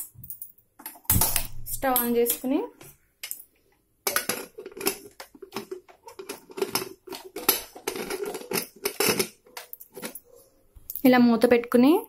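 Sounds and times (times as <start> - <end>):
metal lid scraping on pot: 4.3 - 10.2.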